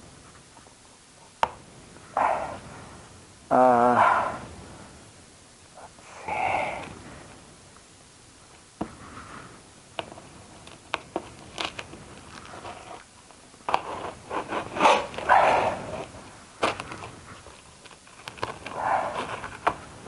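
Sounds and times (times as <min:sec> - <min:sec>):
packaging crinkling: 0:10.6 - 0:13.1, 0:13.7 - 0:19.8
packaging clicks and scrapes: 0:10.6 - 0:19.8.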